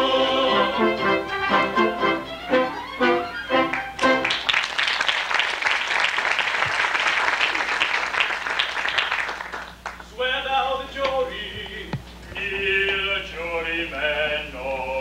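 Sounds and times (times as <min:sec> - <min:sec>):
sung orchestral chord: 0:00.0 - 0:04.5
audience applause: 0:02.8 - 0:10.1.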